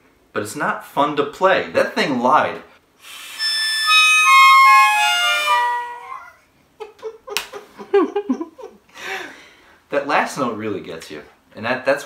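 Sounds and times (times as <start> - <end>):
toy harmonica notes: 3.0 - 6.3
man laughing and gasping: 6.9 - 9.6.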